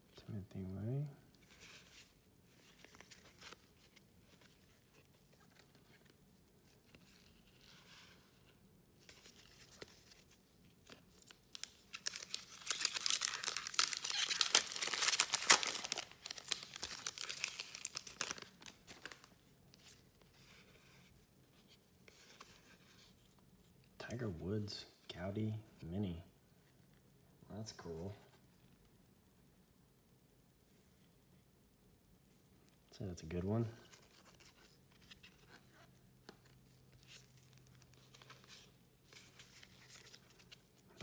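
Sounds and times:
wrapper tearing and crinkling: 0:11.2 - 0:19.3.

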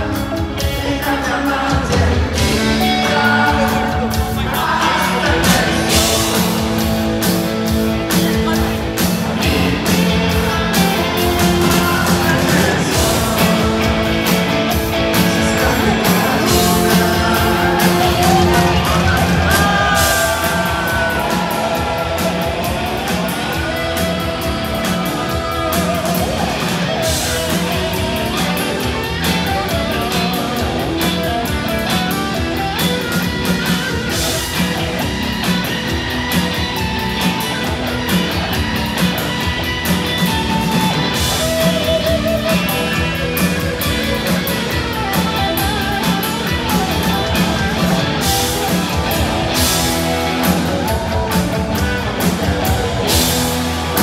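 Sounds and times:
person singing: 0:00.0 - 0:07.3, 0:08.2 - 0:31.2
live rock band playing: 0:00.0 - 0:54.0.

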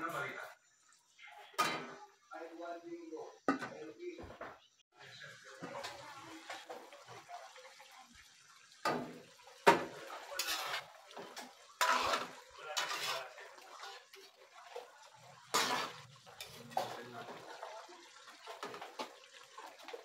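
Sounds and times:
metal ladle scraping a wok: 0:10.1 - 0:14.4, 0:15.4 - 0:17.4.

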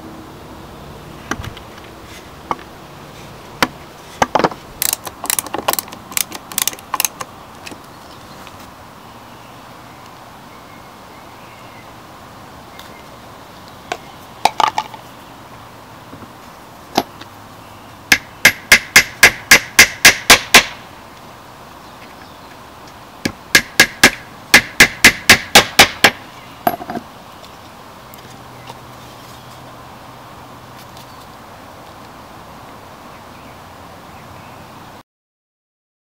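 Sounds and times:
hammer tapping wooden pegs: 0:18.1 - 0:20.8, 0:23.2 - 0:26.9.

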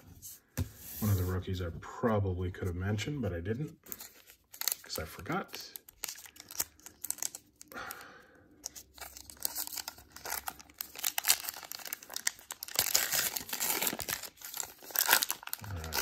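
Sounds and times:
plastic wrapper tearing and crinkling: 0:03.8 - 0:07.7, 0:08.6 - 0:16.0.

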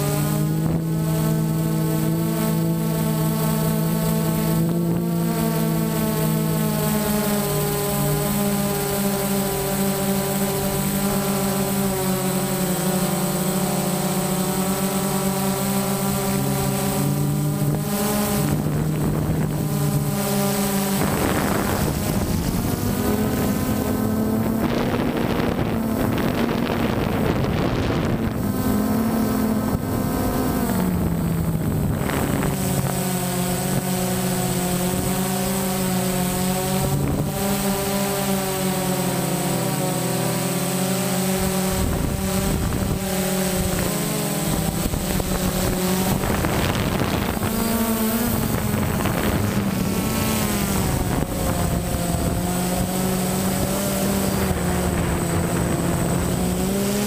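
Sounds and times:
drone propellers whining: 0:00.0 - 0:57.0
wind noise: 0:14.2 - 0:38.8, 0:41.2 - 0:57.0.

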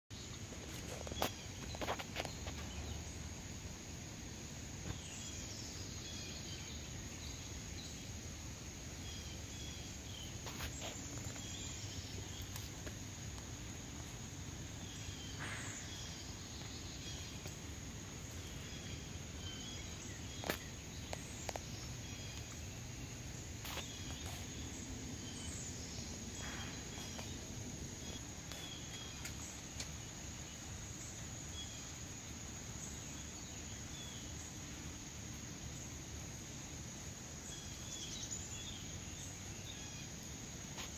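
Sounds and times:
crickets droning: 0:00.1 - 0:40.9.

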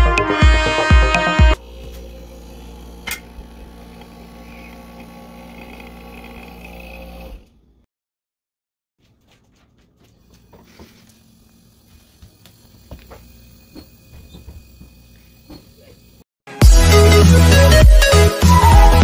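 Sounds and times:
refrigerator compressor humming: 0:01.6 - 0:07.8, 0:10.1 - 0:16.2
relay click: 0:03.0 - 0:03.3.

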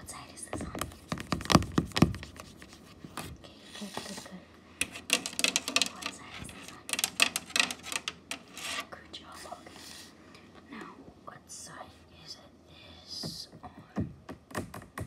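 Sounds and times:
fingers rubbing on phone: 0:00.8 - 0:08.9.

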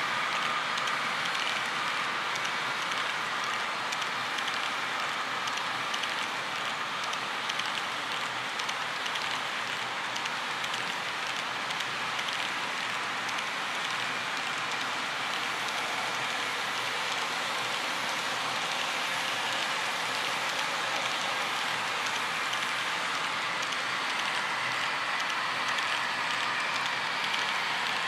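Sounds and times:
model train wheels rushing: 0:00.0 - 0:28.0
small irregular clicks: 0:00.4 - 0:17.3, 0:20.3 - 0:28.0.

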